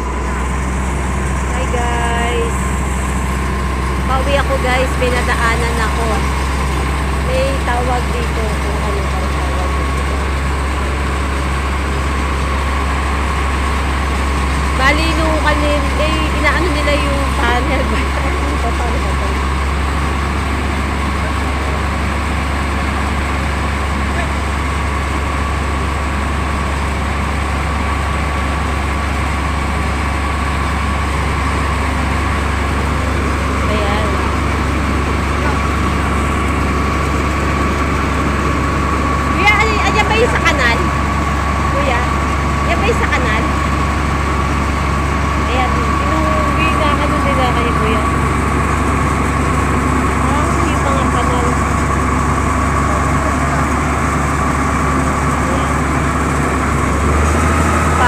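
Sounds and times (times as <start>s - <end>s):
thin steady whine: 0.0s - 58.0s
truck engine and pump drone: 0.0s - 58.0s.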